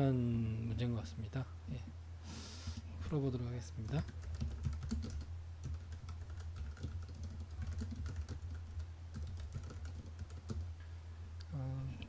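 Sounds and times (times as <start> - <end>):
low steady hum: 0.0 - 12.0
keyboard typing: 3.8 - 10.7.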